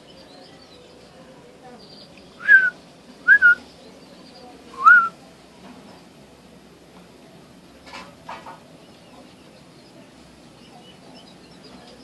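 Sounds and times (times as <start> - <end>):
person whistling short notes: 2.4 - 2.7, 3.3 - 3.6, 4.8 - 5.1.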